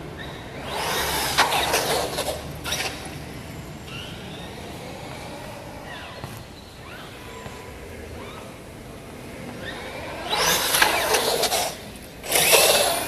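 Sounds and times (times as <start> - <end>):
rc truck motor and tyres rushing: 0.0 - 4.8, 9.6 - 13.0.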